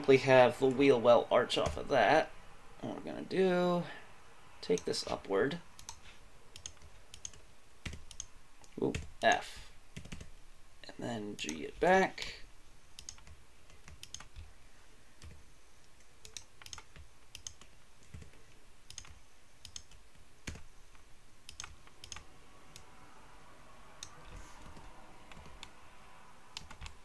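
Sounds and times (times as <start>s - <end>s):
mouse and keyboard clicks: 16.2s - 22.9s.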